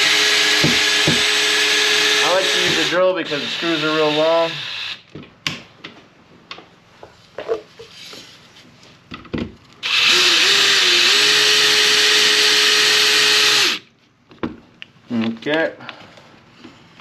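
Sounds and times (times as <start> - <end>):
cordless drill running: 0.0 - 5.0, 9.8 - 13.9.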